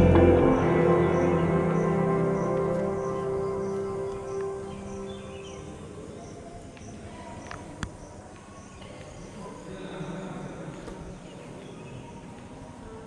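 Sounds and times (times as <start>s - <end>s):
murmur of voices: 0.0s - 13.0s.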